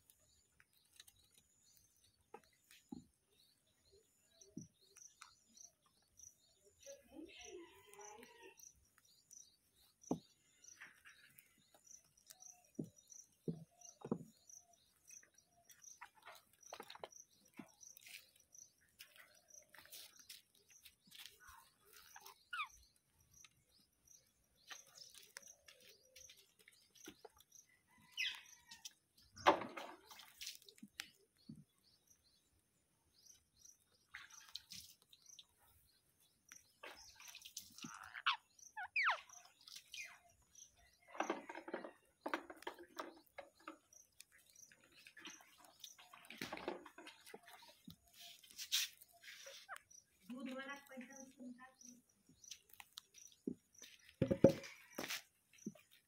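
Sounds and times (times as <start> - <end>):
faint bird chirps: 0.1 - 28.9, 36.8 - 41.4.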